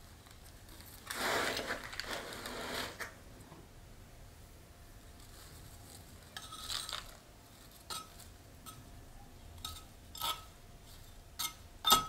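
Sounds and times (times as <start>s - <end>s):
soil scraping: 1.0s - 3.1s
metal trowel clinking on pot: 7.9s - 8.8s, 9.6s - 10.5s, 11.4s - 12.0s.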